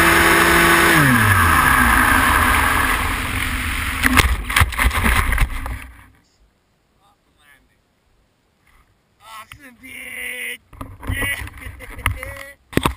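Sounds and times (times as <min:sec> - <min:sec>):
electric motor whining down: 0:00.0 - 0:04.2
knocks and rustles in grass: 0:03.4 - 0:06.2.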